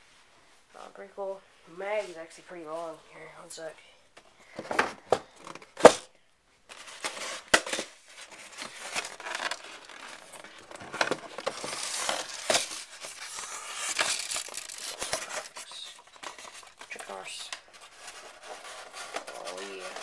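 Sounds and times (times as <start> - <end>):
cardboard box rustling and scraping: 8.1 - 20.0.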